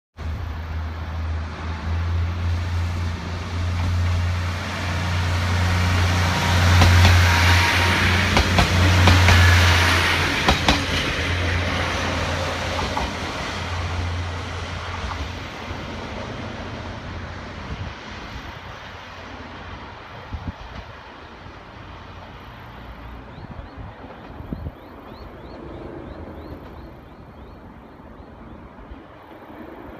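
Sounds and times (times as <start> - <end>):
rush of train wheels: 1.6 - 23.2.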